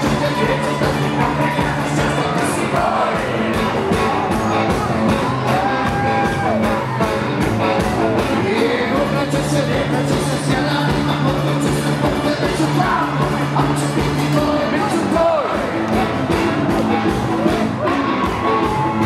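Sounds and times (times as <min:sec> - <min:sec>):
man singing and calling out: 0:00.0 - 0:03.8, 0:08.0 - 0:16.4
drum beat: 0:00.0 - 0:19.0
rock band with brass playing: 0:00.0 - 0:19.0.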